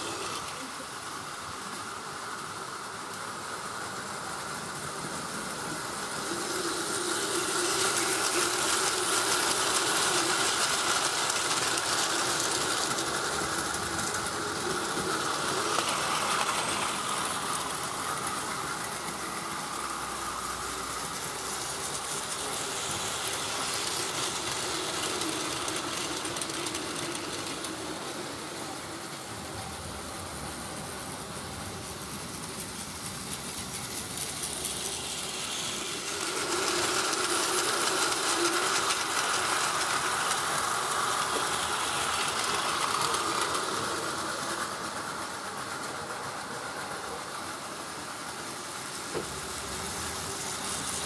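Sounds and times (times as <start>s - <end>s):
toy train motor whine: 0.0s - 51.0s
wheels clattering over track joints: 4.8s - 30.3s.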